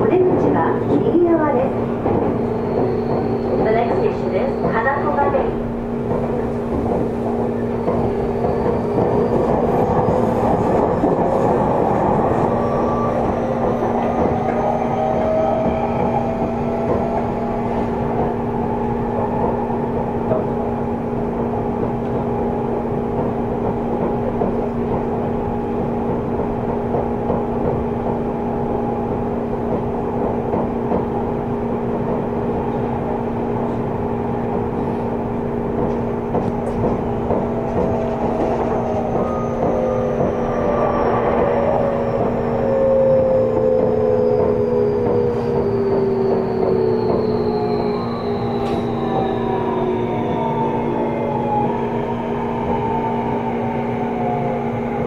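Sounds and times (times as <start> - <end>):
train traction motor whine: 32.6 - 55.0.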